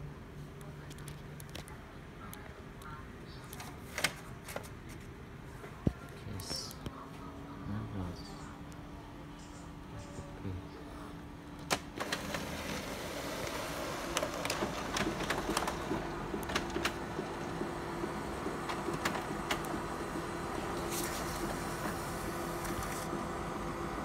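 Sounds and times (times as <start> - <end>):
paper feed clicks and ticks: 3.4 - 5.0, 13.4 - 23.3
printer motors humming: 11.2 - 24.0.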